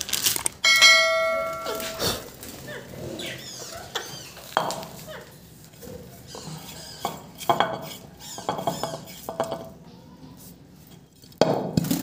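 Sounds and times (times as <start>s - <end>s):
clay bowl clattering on floor: 0.6s - 2.3s.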